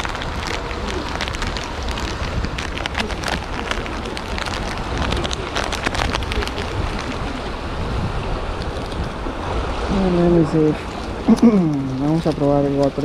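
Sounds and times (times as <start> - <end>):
small clicks and splashes: 0.0 - 7.5, 10.8 - 13.0
wind buffeting microphone: 0.0 - 13.0.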